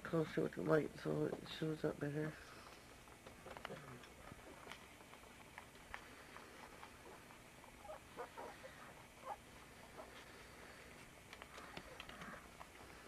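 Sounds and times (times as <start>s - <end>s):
puppies squeaking: 7.0s - 10.1s.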